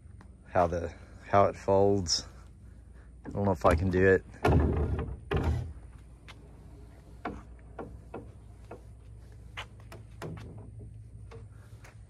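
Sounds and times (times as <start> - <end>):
boat beams clicking and knocking: 3.2 - 5.9, 7.0 - 11.6.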